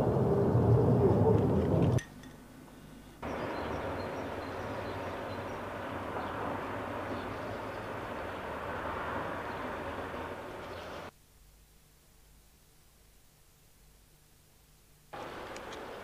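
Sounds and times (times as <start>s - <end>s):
steady engine noise: 3.2s - 11.1s.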